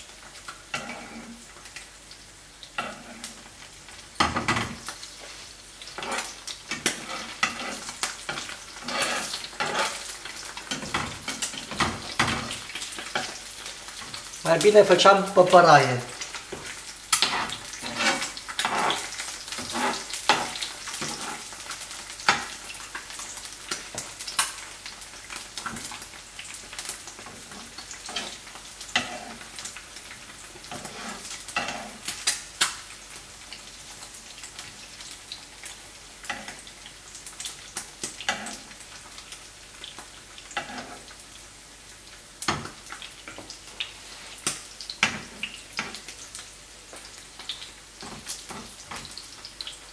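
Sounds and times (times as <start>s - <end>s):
eggs sizzling in a pan: 0.0s - 49.9s
metal spoon scraping a pan: 0.7s - 1.4s, 2.8s - 3.4s, 4.4s - 13.4s, 16.3s - 22.6s, 27.2s - 29.6s, 30.5s - 32.3s, 38.2s - 38.7s, 40.4s - 41.1s.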